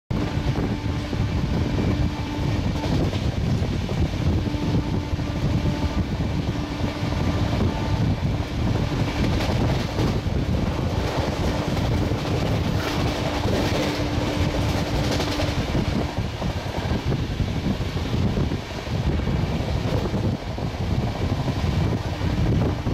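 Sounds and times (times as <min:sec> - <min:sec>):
train wheels rumbling on rails: 0:00.1 - 0:22.9
wind buffeting: 0:00.1 - 0:22.9
distant locomotive horn: 0:00.2 - 0:03.3, 0:04.0 - 0:08.7, 0:11.0 - 0:16.2.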